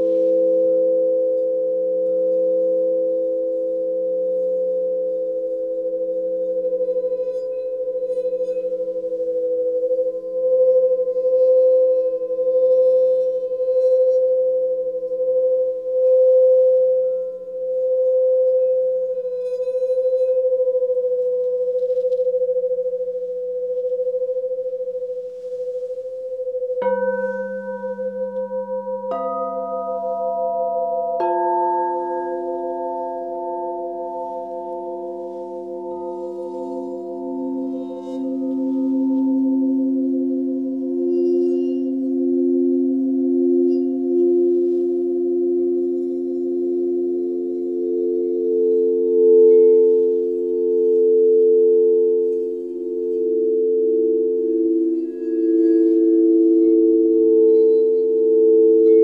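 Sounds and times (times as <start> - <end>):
crystal singing bowls ringing: 0.0 - 59.0
singing bowl struck: 24.0 - 59.0.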